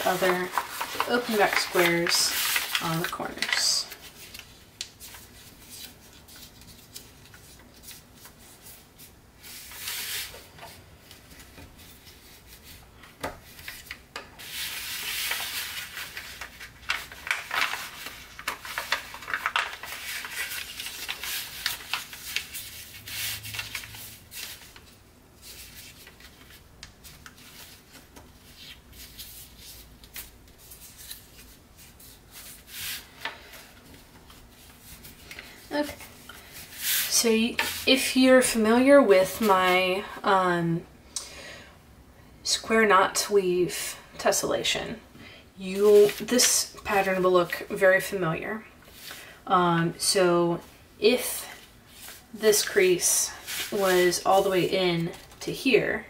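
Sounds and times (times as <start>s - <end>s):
paper creasing crackles: 0.0s - 8.8s, 13.4s - 38.6s, 45.7s - 47.6s, 51.9s - 55.4s
paper rustling and crinkling: 0.0s - 40.0s, 45.7s - 47.6s, 51.5s - 55.6s.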